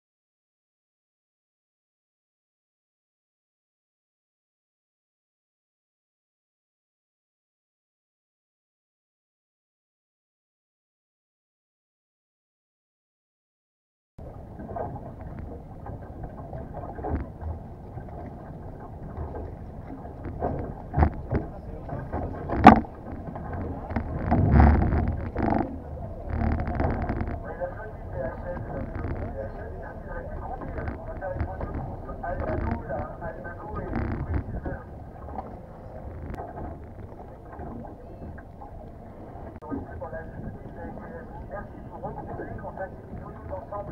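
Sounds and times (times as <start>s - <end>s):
water lapping against a hull: 14.2s - 43.9s
water splashes: 14.2s - 43.9s
wind buffeting the microphone: 14.2s - 43.9s.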